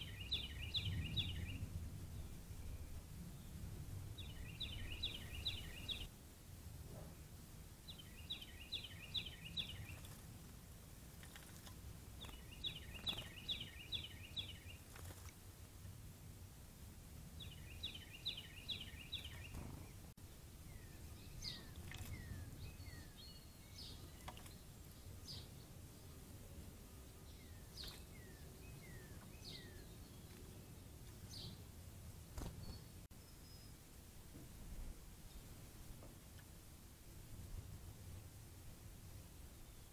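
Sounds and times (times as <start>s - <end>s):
songbird singing: 0.0s - 6.1s, 7.8s - 15.4s, 17.3s - 31.8s, 32.4s - 36.6s, 39.4s - 39.9s.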